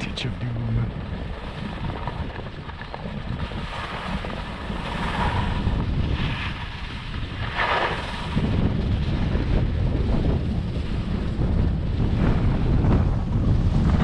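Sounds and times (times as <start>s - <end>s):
wind buffeting microphone: 0.0s - 14.0s
skis scraping snow: 3.1s - 9.3s.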